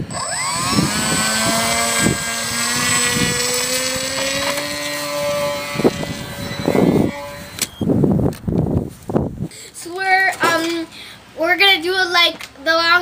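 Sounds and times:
rc plane motor whining: 0.0 - 7.9.

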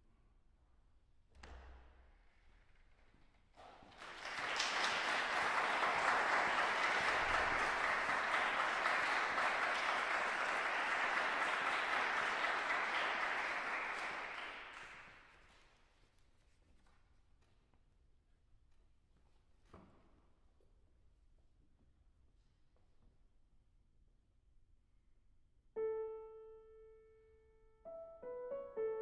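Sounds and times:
audience applauding: 3.8 - 15.3.

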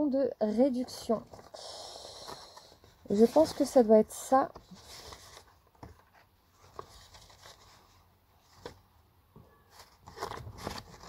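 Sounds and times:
paper rustling: 2.2 - 8.8, 9.7 - 11.0.

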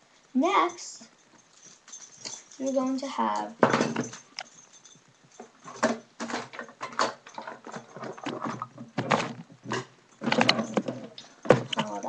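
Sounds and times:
rustles and knocks: 1.1 - 12.0.

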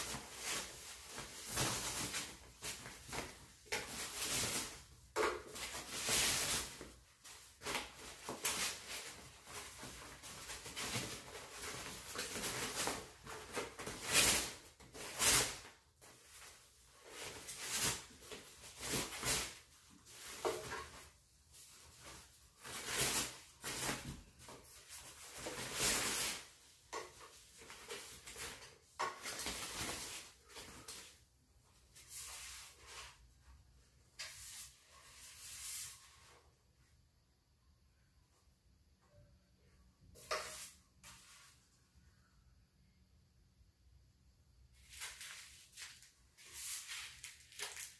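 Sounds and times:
foam and plastic wrap crinkling: 0.0 - 31.2, 44.8 - 47.9.

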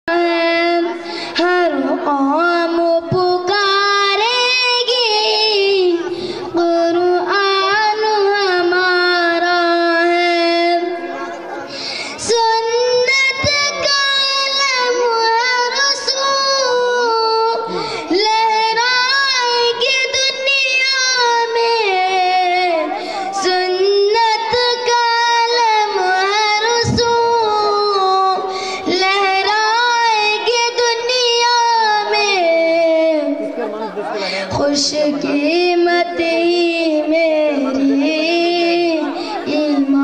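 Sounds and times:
boy singing into a microphone: 0.1 - 40.0.

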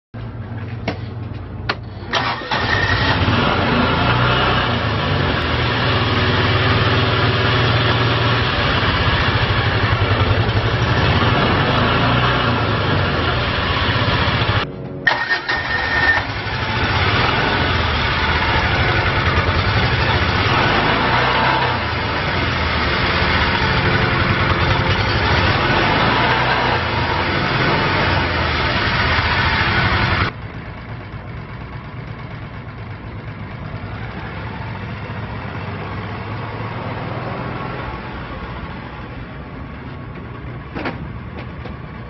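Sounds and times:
engine cranking and idling: 0.5 - 5.7, 8.0 - 35.9.

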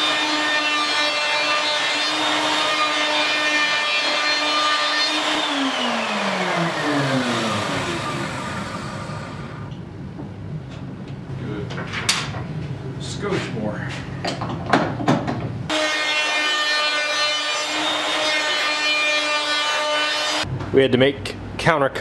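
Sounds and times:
router whining and spinning down: 0.0 - 9.8.

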